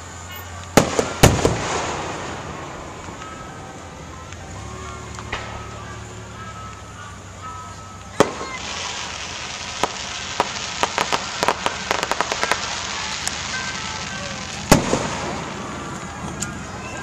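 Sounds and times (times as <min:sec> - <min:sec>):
firework hissing shower: 0:00.0 - 0:17.0
crackling pops: 0:00.6 - 0:05.8, 0:07.9 - 0:16.8
firework bang: 0:00.8 - 0:03.5, 0:05.2 - 0:05.8, 0:08.2 - 0:16.4.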